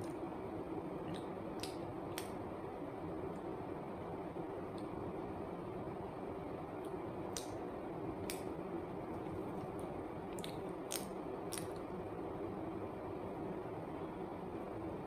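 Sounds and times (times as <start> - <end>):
wet mouth sounds: 10.3 - 11.9.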